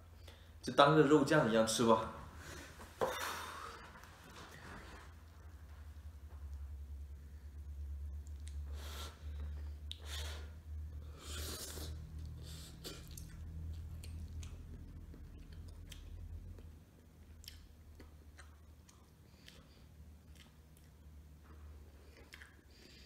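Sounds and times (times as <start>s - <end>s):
steady low hum: 0.0s - 23.0s
person slurping noodles: 11.1s - 13.1s
chewing with wet mouth clicks: 12.2s - 23.0s.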